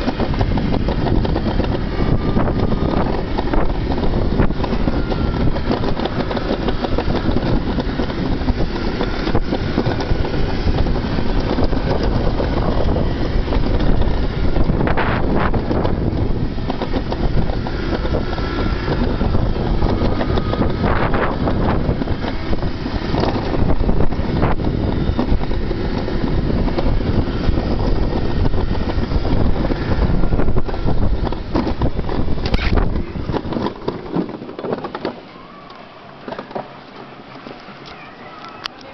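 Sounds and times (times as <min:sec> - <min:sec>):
sled wheels rumbling on steel track: 0:00.0 - 0:38.9
wind buffeting microphone: 0:00.0 - 0:38.9.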